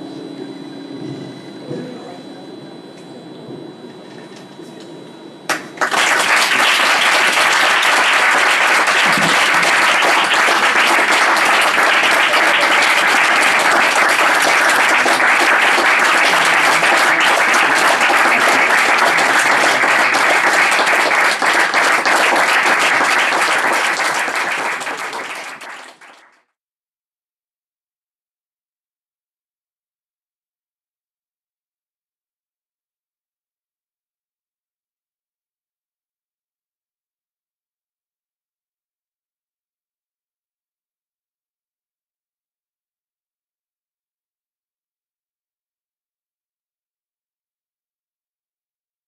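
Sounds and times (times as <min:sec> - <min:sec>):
audience applauding: 0:05.5 - 0:26.4.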